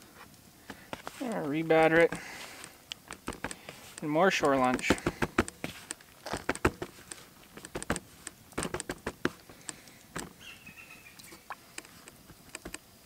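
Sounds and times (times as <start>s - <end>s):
hands patting fish in batter: 2.1s - 10.4s.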